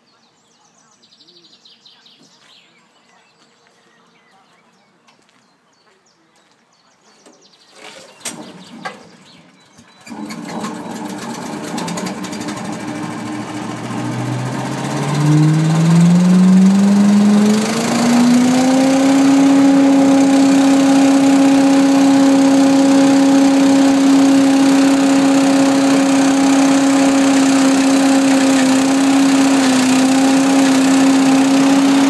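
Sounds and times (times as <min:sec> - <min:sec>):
engine running and revving: 0:10.0 - 0:32.0.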